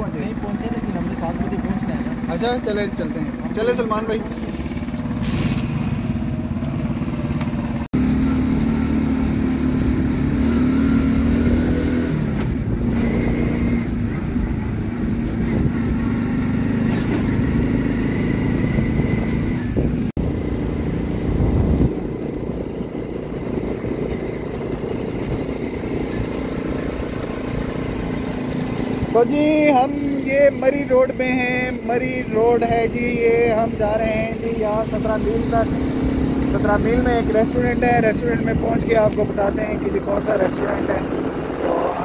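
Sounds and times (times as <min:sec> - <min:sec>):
motorcycle engine running: 0:00.0 - 0:42.0
wind rumbling on microphone: 0:11.4 - 0:16.2, 0:17.2 - 0:29.2.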